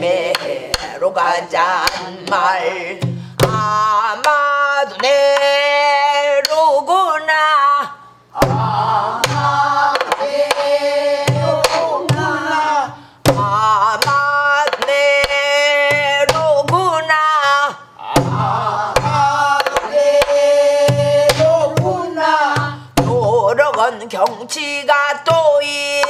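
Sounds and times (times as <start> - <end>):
woman singing folk song: 0.0 - 8.0, 11.4 - 17.8, 21.2 - 26.0.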